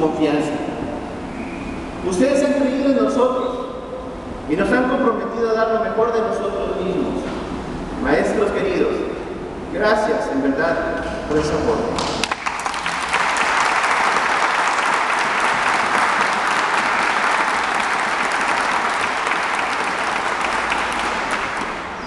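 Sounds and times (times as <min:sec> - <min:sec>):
audience applauding: 0:12.0 - 0:22.0.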